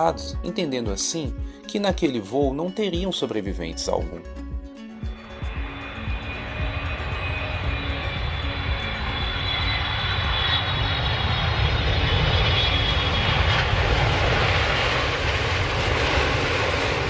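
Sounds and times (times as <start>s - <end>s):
high fan whine: 5.1s - 17.0s
jet airliner engines roaring: 5.1s - 17.0s.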